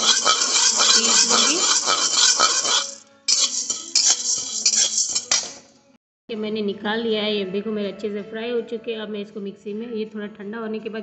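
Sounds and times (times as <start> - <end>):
lentils rattling in metal pan: 0.0 - 5.6.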